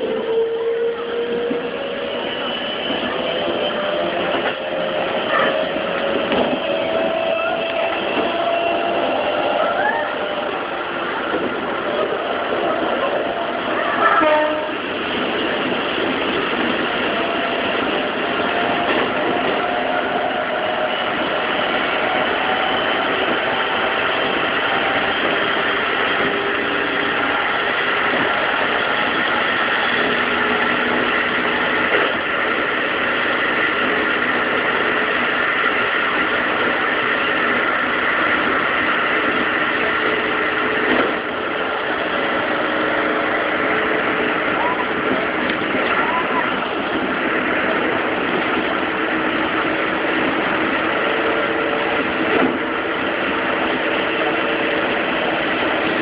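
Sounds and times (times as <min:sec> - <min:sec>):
train rumbling through tunnel: 0:00.0 - 0:56.0.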